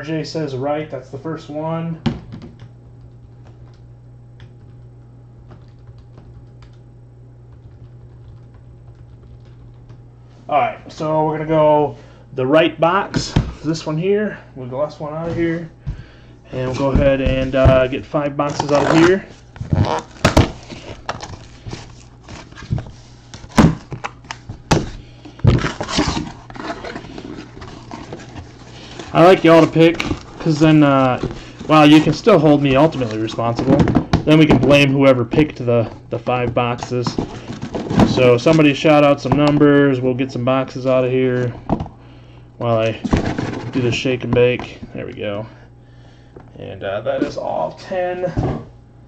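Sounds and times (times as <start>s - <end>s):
steady low hum: 0.0s - 49.0s
cardboard boxes scraping: 25.5s - 33.6s.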